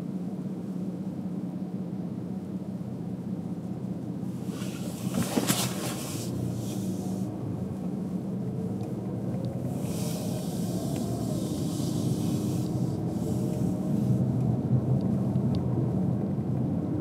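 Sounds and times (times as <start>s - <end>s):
car road noise: 0.0s - 17.0s
hiss: 9.8s - 13.7s.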